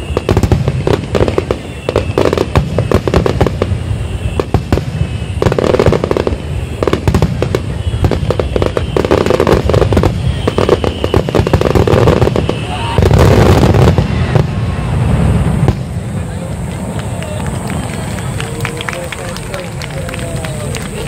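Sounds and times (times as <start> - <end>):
fireworks bursting: 0.0 - 21.0
continuous low rumble: 14.0 - 21.0.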